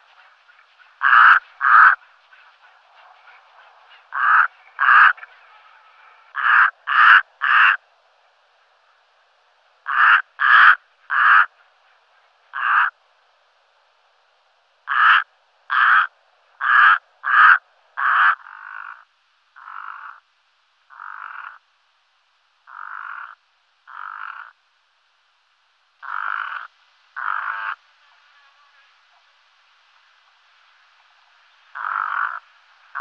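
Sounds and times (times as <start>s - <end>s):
raven croaking: 1.0s - 2.0s, 4.0s - 7.8s, 9.8s - 11.6s, 12.5s - 13.0s, 14.8s - 20.3s, 20.9s - 21.6s, 22.6s - 24.6s, 26.0s - 27.8s, 31.7s - 33.0s.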